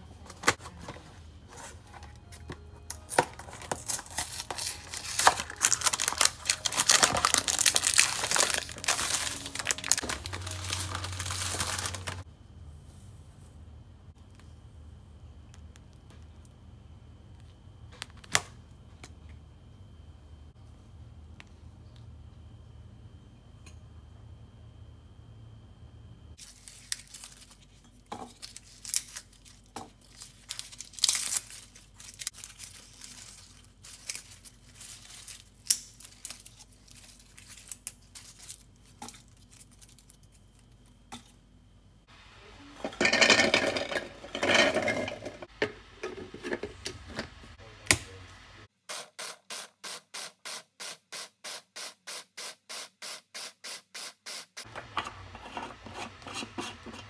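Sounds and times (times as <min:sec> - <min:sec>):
garlic skins crackling: 0:03.4 - 0:12.2, 0:26.4 - 0:27.7, 0:28.3 - 0:40.8
rustling: 0:03.8 - 0:12.2.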